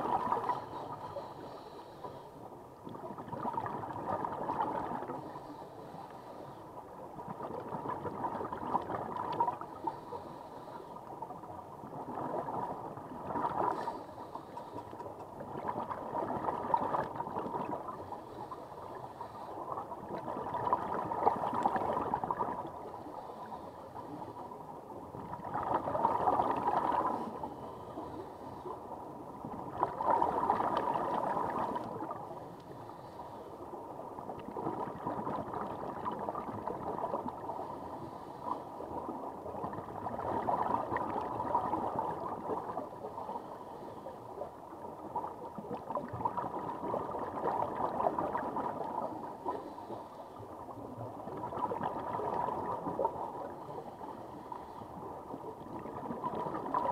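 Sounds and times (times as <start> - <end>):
underwater regulator bubbling: 0.0 - 1.7, 25.2 - 28.2
faint steady hum: 0.0 - 56.9.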